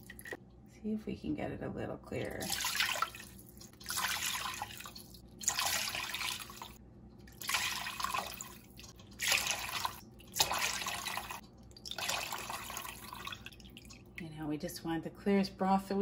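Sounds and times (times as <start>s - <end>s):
broth pouring and splashing into pot: 2.4s - 14.2s.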